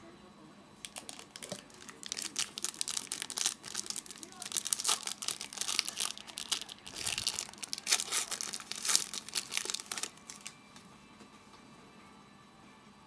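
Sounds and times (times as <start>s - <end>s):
trading cards rustling: 0.9s - 10.8s.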